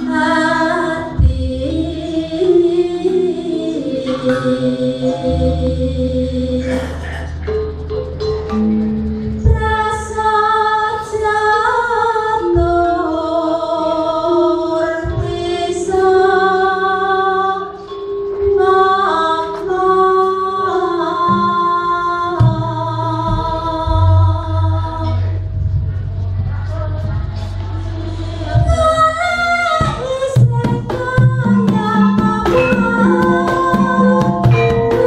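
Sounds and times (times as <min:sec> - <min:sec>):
metallophone struck: 0:30.6 - 0:35.0.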